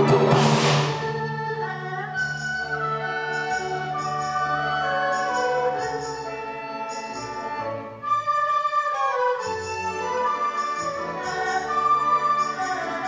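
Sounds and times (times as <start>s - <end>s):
traditional orchestra playing: 0.0s - 13.0s.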